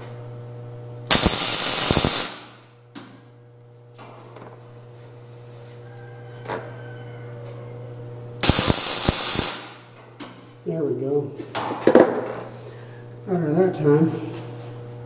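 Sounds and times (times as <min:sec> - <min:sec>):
welding arc crackle: 0:01.1 - 0:02.7, 0:08.4 - 0:09.9.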